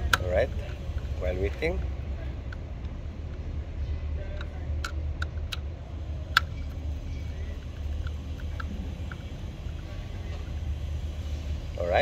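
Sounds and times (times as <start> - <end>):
screwdriver clicks and ticks: 0.0 - 3.5, 4.3 - 5.7, 6.3 - 10.6
steady low rumble: 0.0 - 12.0.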